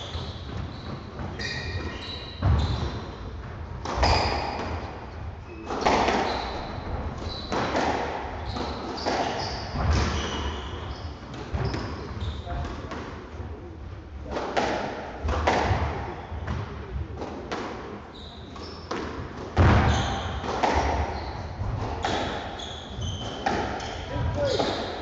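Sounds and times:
squash ball hits echoing: 0.0s - 5.1s, 5.7s - 10.6s, 14.3s - 17.9s, 18.8s - 25.0s.

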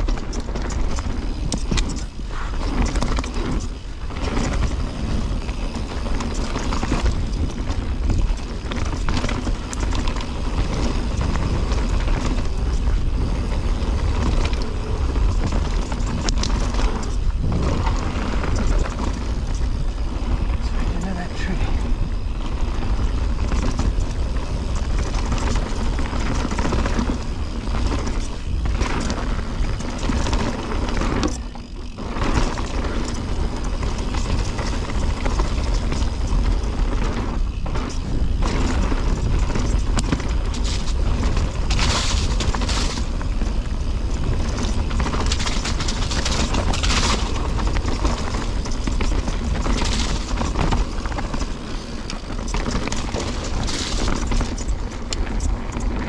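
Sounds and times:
bike chain and frame rattling: 0.0s - 56.0s
tyres on dirt: 0.0s - 56.0s
wind rumble on microphone: 0.0s - 56.0s.

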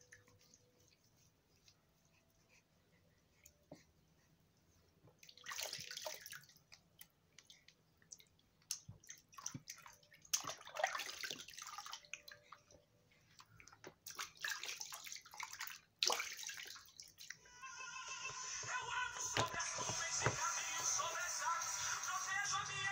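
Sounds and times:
water drips and trickles: 0.0s - 1.0s, 5.2s - 17.4s
bath water splashing: 5.2s - 6.6s, 8.1s - 12.6s, 13.4s - 17.4s.

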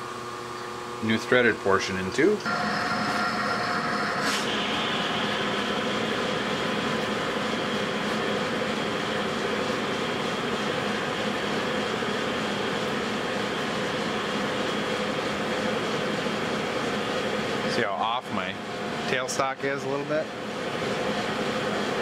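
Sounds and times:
metal lathe running: 2.4s - 22.0s.

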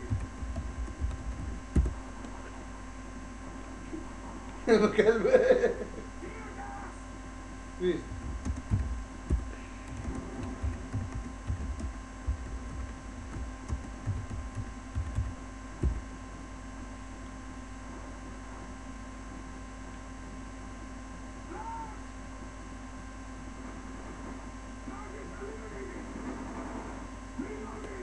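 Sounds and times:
steady electrical hum: 0.0s - 28.0s
typing on a computer keyboard: 8.2s - 16.0s.

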